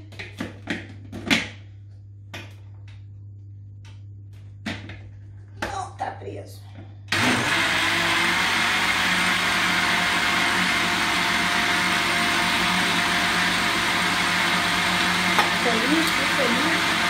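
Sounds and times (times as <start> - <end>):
blender motor running: 7.1 - 17.0.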